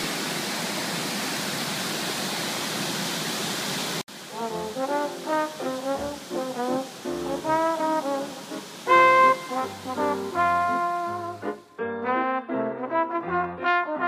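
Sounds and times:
waterfall roaring: 0:00.0 - 0:11.7
background music: 0:04.3 - 0:14.0.

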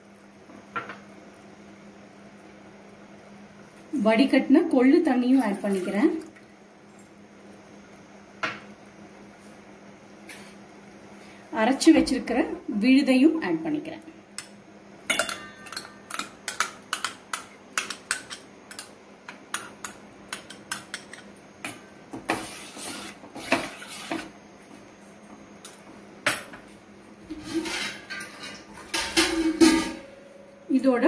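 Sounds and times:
metal spoon clinking on pot: 0:15.1 - 0:18.9
spoon scraping in bowl: 0:22.3 - 0:24.3.

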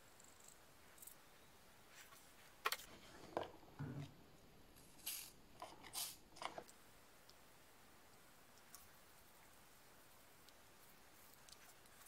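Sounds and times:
scraping and tapping on remote buttons: 0:02.0 - 0:04.1, 0:05.6 - 0:07.4, 0:10.4 - 0:12.0.

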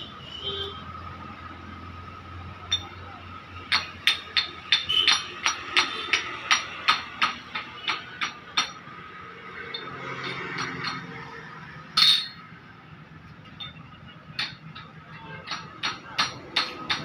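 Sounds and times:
hammer striking steel: 0:02.7 - 0:03.0, 0:03.6 - 0:11.3, 0:12.0 - 0:12.5, 0:13.6 - 0:17.0.

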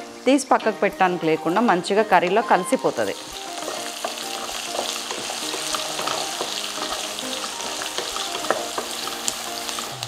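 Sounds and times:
food sizzling in oil: 0:00.0 - 0:10.0
spatula stirring and tapping: 0:03.3 - 0:10.0.

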